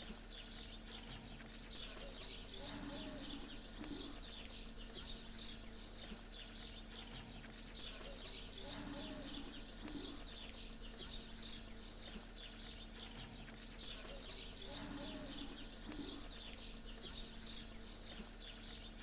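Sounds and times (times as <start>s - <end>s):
small birds chirping: 0.0s - 19.0s
low dove coo: 2.0s - 4.4s, 7.9s - 10.5s, 13.2s - 16.5s.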